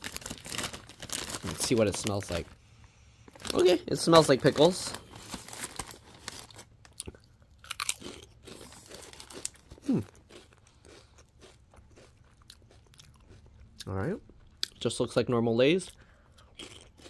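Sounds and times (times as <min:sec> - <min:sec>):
chip bag crinkling: 0:00.0 - 0:02.5, 0:03.3 - 0:10.5
chips crunching: 0:03.3 - 0:13.6, 0:16.4 - 0:17.0.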